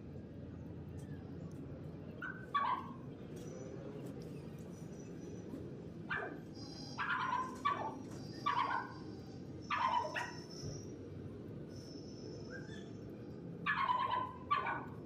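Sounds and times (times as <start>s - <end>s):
low background hum: 0.0s - 15.0s
dog barking: 2.2s - 3.0s, 6.1s - 6.4s, 7.0s - 9.0s, 9.7s - 10.4s, 13.7s - 15.0s.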